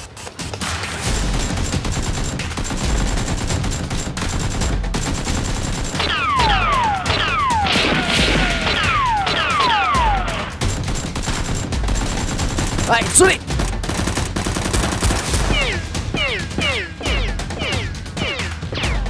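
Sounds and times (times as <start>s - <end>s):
rapid automatic gunfire effects: 0.0s - 19.0s
low beat: 15.4s - 19.0s.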